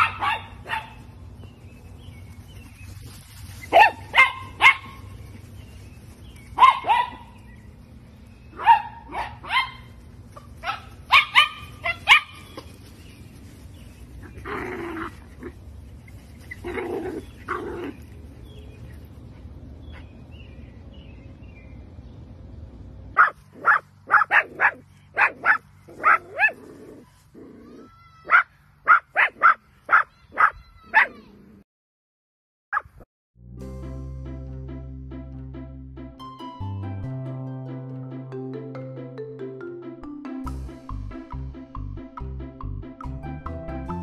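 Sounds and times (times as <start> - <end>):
small dog barking: 0.0 - 1.1, 3.6 - 5.1, 6.6 - 7.4, 8.5 - 12.6, 23.2 - 26.7, 27.6 - 31.3.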